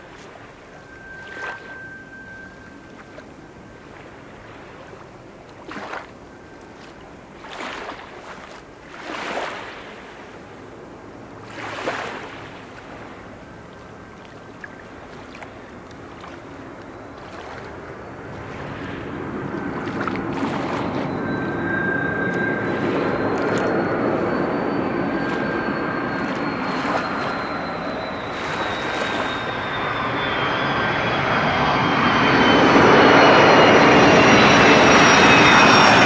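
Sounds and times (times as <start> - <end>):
distant airliner engines: 0.0 - 36.0
wind gusting on microphone: 17.7 - 36.0.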